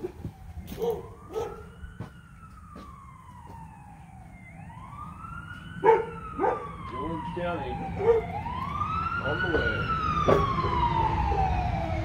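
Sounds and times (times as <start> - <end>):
emergency siren wailing: 0.0 - 12.0
dog barking: 0.8 - 1.7, 5.8 - 6.7, 8.0 - 8.3.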